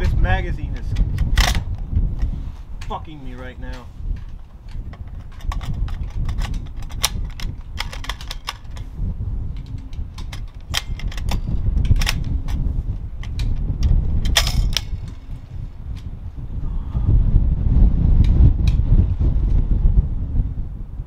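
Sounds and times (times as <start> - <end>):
wind rumbling on microphone: 0.0 - 21.0
metallic clicks of rifle handling: 0.9 - 8.9, 9.6 - 16.1.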